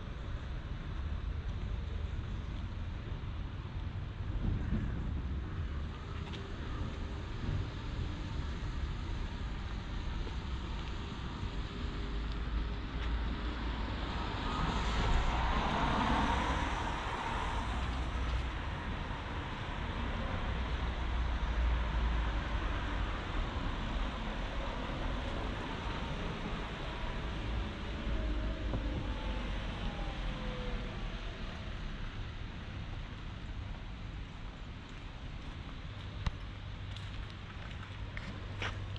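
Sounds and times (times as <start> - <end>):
background traffic noise: 0.0 - 38.9
car passing: 13.4 - 33.6.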